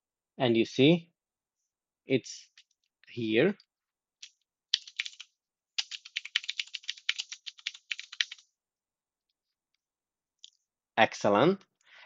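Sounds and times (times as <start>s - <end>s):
typing on a computer keyboard: 4.2s - 8.4s.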